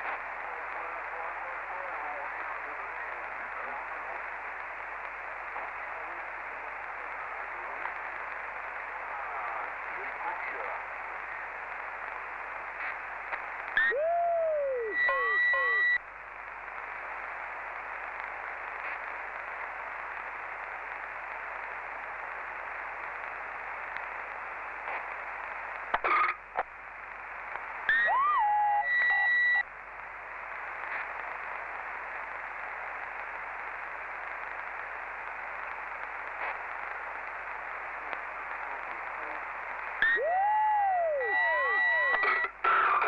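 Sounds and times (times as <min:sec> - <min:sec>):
radio static hiss: 0:00.0 - 0:43.0
high radio beep: 0:13.8 - 0:16.0, 0:27.9 - 0:29.6, 0:40.0 - 0:40.4, 0:41.0 - 0:42.5
sliding radio whistles: 0:13.8 - 0:16.0, 0:27.9 - 0:29.6, 0:40.0 - 0:43.0.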